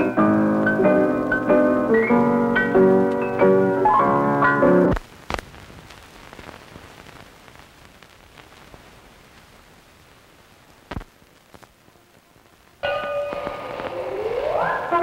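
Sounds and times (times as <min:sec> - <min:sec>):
piano music: 0:00.0 - 0:05.0, 0:12.8 - 0:15.0
film soundtrack hiss and crackle: 0:00.0 - 0:15.0
sharp pop: 0:04.9 - 0:05.5, 0:10.9 - 0:11.1.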